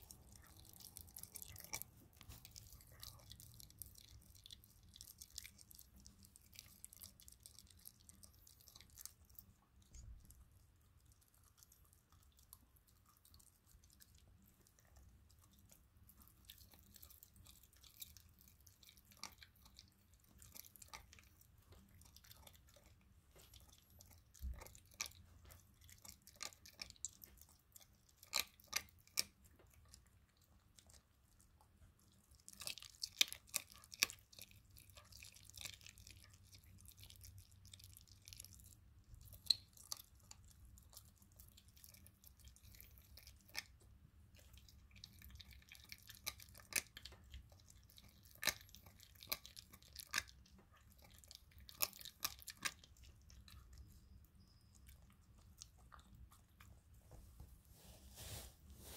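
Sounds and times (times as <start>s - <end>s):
puppy chewing bones: 0.0s - 57.4s.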